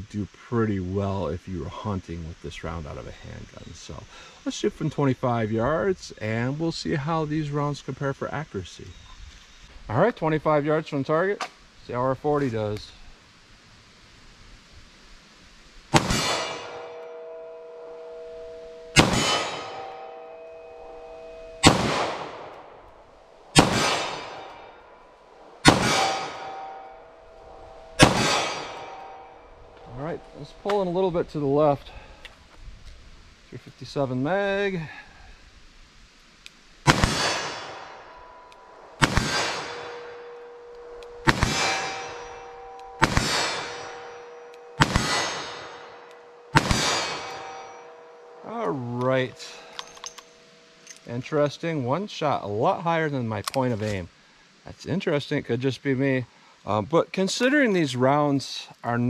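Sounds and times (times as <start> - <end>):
pistol shots: 15.9 - 17.0, 18.9 - 19.9, 21.6 - 22.6, 23.6 - 24.7, 25.6 - 26.8, 28.0 - 29.2, 36.9 - 38.0, 39.0 - 45.9, 46.5 - 47.6
revolver gunshots: 15.9 - 22.8, 23.5 - 24.8, 25.5 - 29.4, 36.8 - 47.8
steel target ringing: 15.9 - 32.0, 36.9 - 51.8
bullet clanging on steel target: 49.4 - 51.1.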